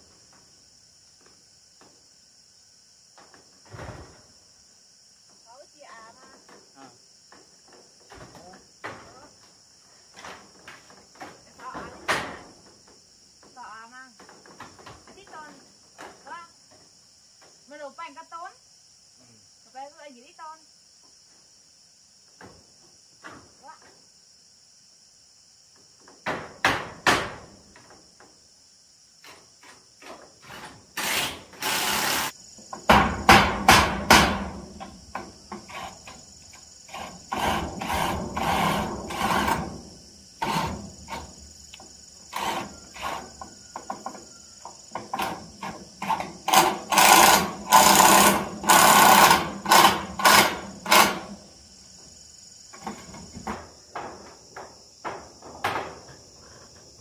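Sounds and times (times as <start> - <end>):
insects droning: 0.0 - 57.0
drill driving screws into metal: 30.4 - 32.3, 46.0 - 51.4.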